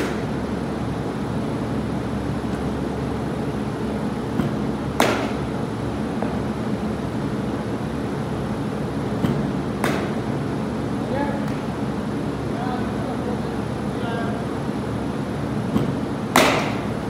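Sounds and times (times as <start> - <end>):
baseball bat crack: 0.0 - 0.4, 4.3 - 5.6, 9.2 - 10.3, 15.7 - 17.0
steady mechanical hum: 0.0 - 17.0.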